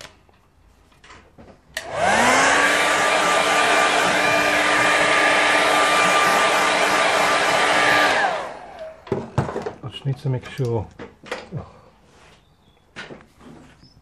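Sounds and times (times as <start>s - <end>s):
hair dryer switch click: 1.8s - 2.1s
hair dryer blowing: 1.8s - 9.0s.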